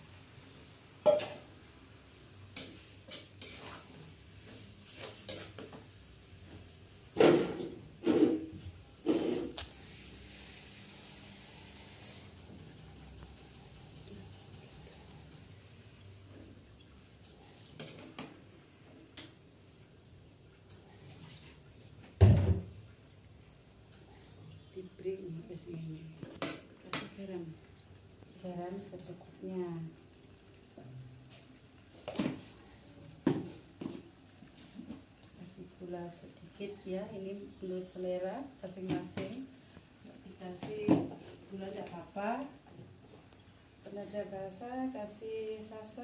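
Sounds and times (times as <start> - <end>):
faint sizzle: 0.0 - 46.0
metal spatula scraping wok: 2.6 - 5.7, 7.2 - 9.5.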